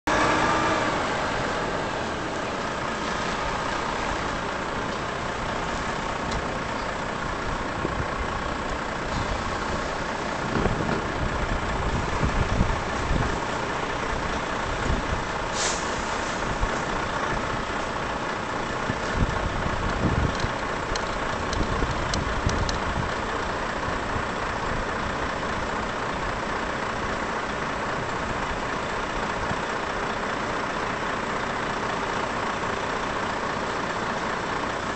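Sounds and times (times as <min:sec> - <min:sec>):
truck diesel engine running: 0:00.0 - 0:34.9
air brake hiss: 0:15.4 - 0:16.6.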